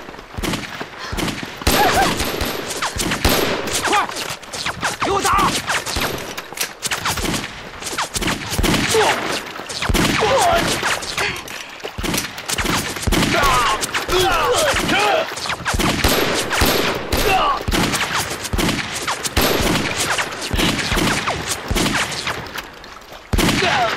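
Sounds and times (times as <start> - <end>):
rifle gunfire: 0.4 - 4.1, 12.0 - 22.3.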